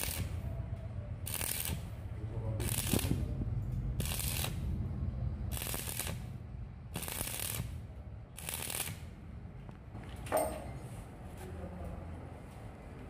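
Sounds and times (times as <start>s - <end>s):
welding arc crackling: 0.0s - 0.5s, 1.2s - 9.2s.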